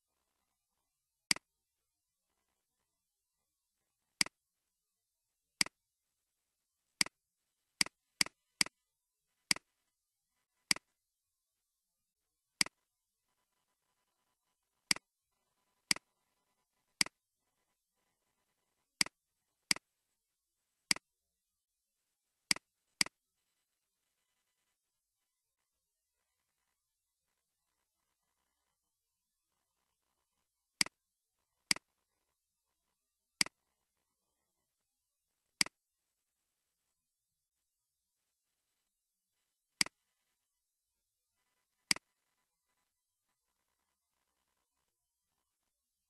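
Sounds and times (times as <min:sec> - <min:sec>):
computer mouse clicks: 0:01.3 - 0:01.5, 0:09.5 - 0:09.7, 0:10.7 - 0:10.9, 0:15.9 - 0:16.1, 0:20.9 - 0:21.1, 0:31.7 - 0:32.0, 0:41.9 - 0:42.1.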